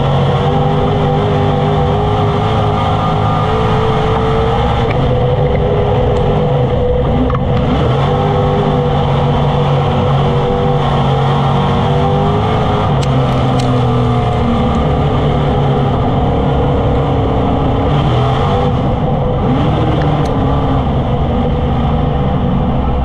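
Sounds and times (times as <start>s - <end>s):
race car engine running hard: 0.0s - 23.0s.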